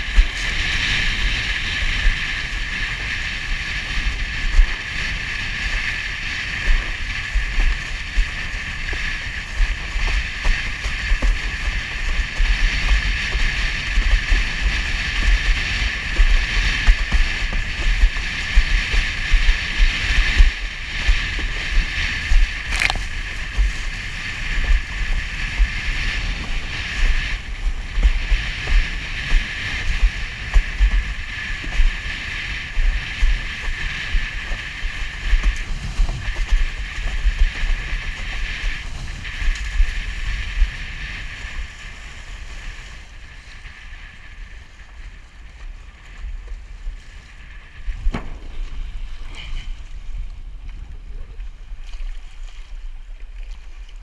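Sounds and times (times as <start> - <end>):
water rushing under a board: 0.0 - 54.0
wind buffeting microphone: 0.0 - 54.0.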